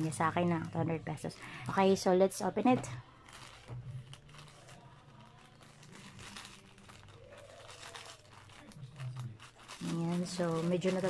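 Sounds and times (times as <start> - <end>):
plastic mailer crinkling: 3.0 - 11.0.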